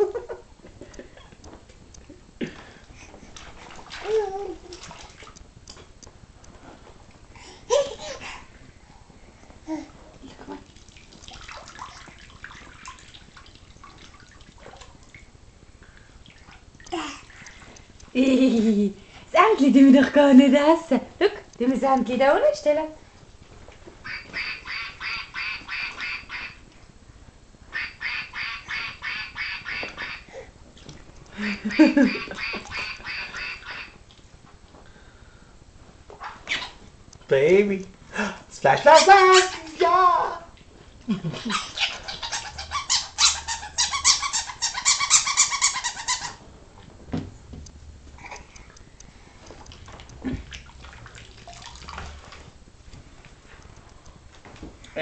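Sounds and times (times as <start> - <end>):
small water splashes and drips: 3.3 - 5.8, 10.4 - 18.1, 49.5 - 52.5.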